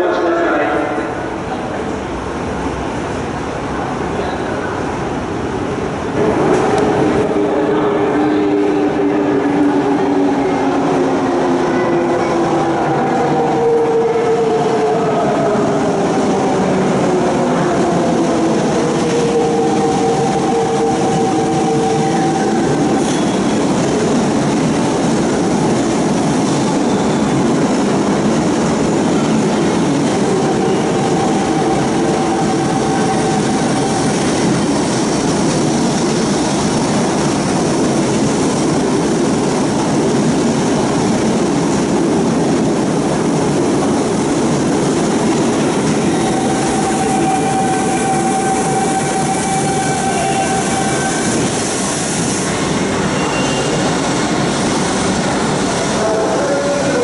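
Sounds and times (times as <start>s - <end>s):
subway train wheels rumbling: 0.0s - 57.0s
faint brake squeals: 53.1s - 53.9s.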